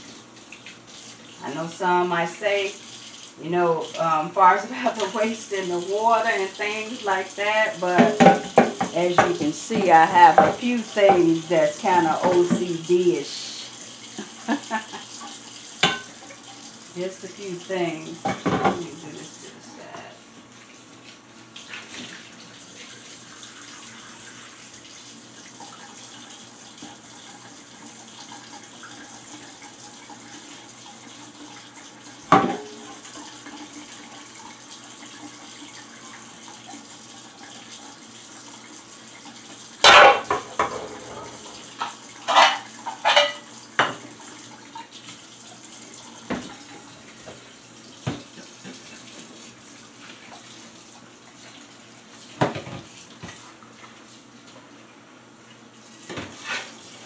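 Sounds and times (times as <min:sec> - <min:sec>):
pan clanking against sink: 0:07.9 - 0:11.2, 0:18.2 - 0:18.9, 0:32.3 - 0:32.8, 0:39.8 - 0:44.0
tap running into a sink: 0:07.9 - 0:11.3, 0:18.2 - 0:19.0, 0:32.2 - 0:34.0, 0:39.3 - 0:45.2, 0:45.9 - 0:49.4, 0:52.3 - 0:54.6, 0:56.0 - 0:56.7.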